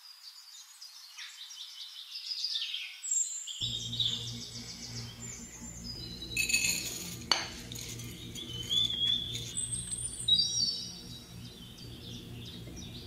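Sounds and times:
birdsong chirps and whistles: 0.0 - 13.0
low steady hum: 3.6 - 13.0
utensil clinking against dish: 6.4 - 9.6.

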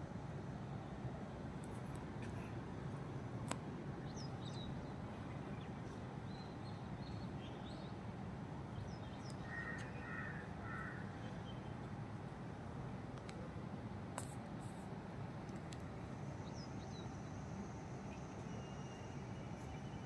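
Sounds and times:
crow cawing: 9.5 - 11.1
faint high chirps: 16.4 - 20.0.

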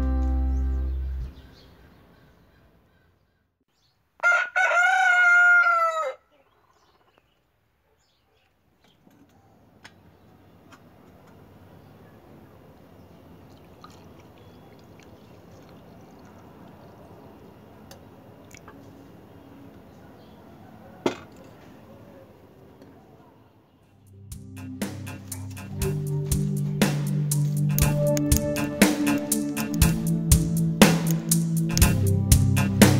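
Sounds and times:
rooster crowing: 4.2 - 6.3
outdoor ambience hiss: 7.0 - 32.9.

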